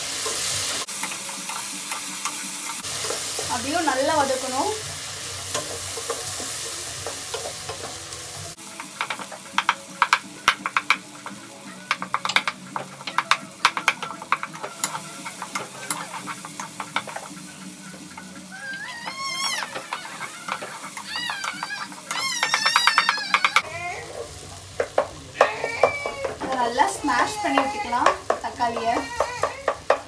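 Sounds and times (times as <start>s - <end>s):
food sizzling in a pot: 0.0s - 30.0s
spatula scraping a pot: 11.9s - 24.4s.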